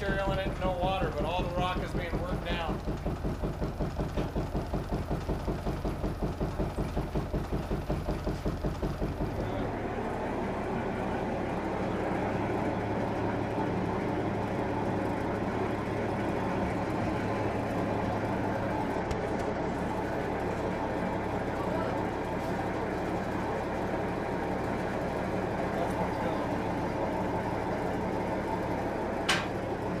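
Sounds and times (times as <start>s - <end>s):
mill machinery rumbling and humming: 0.0s - 30.0s.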